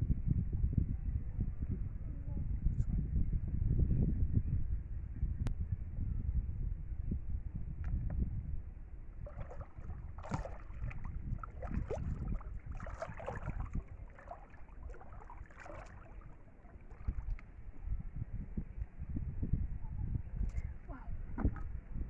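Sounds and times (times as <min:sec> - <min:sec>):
steady low rumble: 0:00.0 - 0:22.0
water splashing around wading legs: 0:09.2 - 0:17.6.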